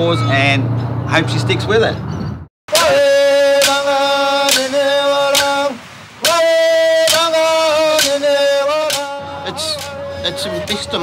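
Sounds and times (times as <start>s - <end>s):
man chanting long held notes: 2.7s - 11.0s
boomerangs clapped together: 3.6s - 5.6s, 7.0s - 10.0s.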